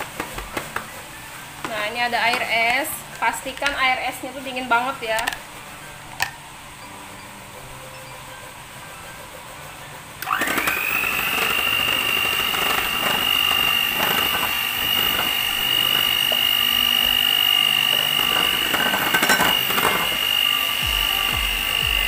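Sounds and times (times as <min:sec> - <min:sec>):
electric hand mixer whining: 0:10.2 - 0:22.0.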